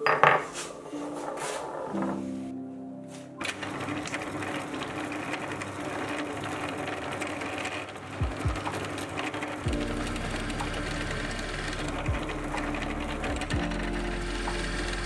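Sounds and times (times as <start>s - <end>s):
drill motor hum: 3.5s - 15.0s.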